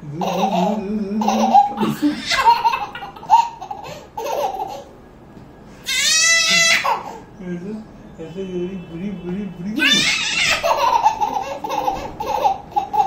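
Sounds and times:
toddler giggling: 0.2s - 4.9s, 9.8s - 13.0s.

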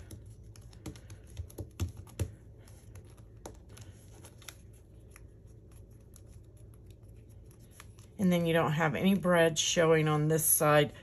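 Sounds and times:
fingers tapping cardstock: 0.0s - 3.6s.

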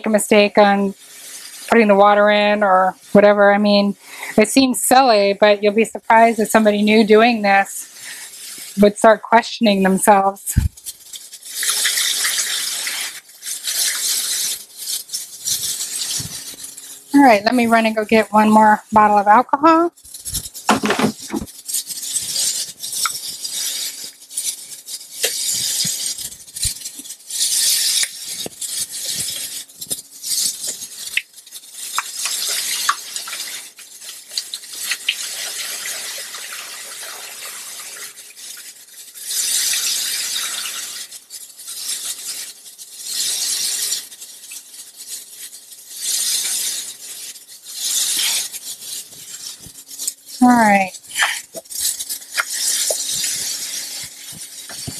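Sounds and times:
liquid pouring through funnel: 7.8s - 8.9s, 10.1s - 17.2s, 20.0s - 54.9s
containers knocking and clinking: 20.6s - 21.5s.

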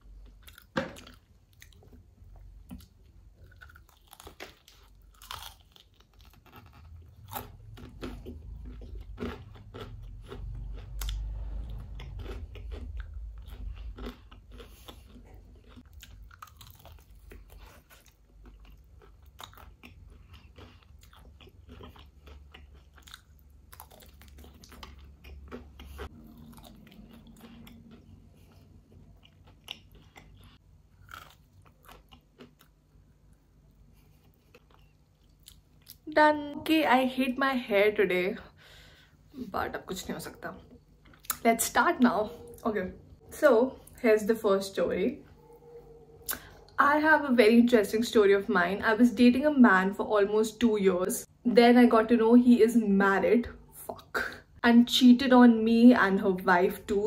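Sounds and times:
chewing: 0.2s - 36.0s, 40.2s - 41.4s, 45.3s - 46.8s
crunching fried chicken: 3.3s - 33.4s
low rumble: 7.0s - 13.9s.

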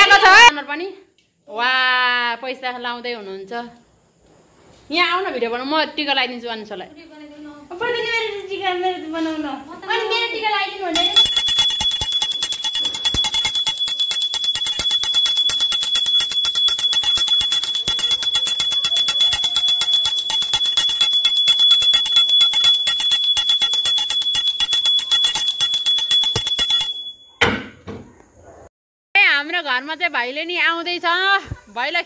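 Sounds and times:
small bell ringing rapidly: 11.0s - 27.5s.

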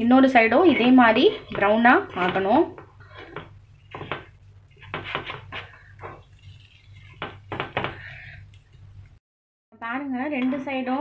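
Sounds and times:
metal spoon tapping a pan: 7.1s - 8.1s.

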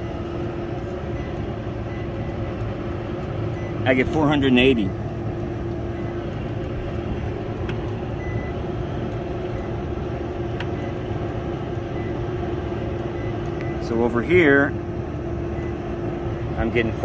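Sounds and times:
air-conditioning unit humming: 0.0s - 17.0s.

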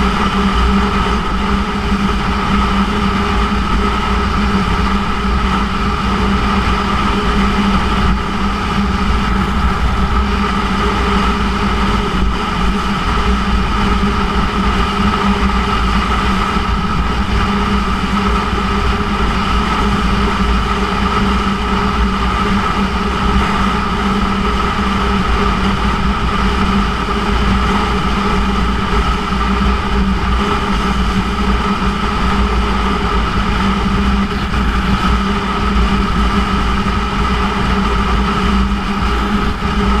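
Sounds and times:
wind rumble on microphone: 0.0s - 40.0s.

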